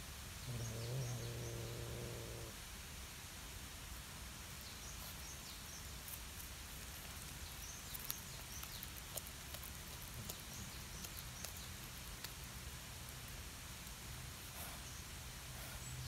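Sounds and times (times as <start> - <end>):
steady outdoor hiss: 0.0 - 16.0
cat crunching on fish: 6.0 - 14.0.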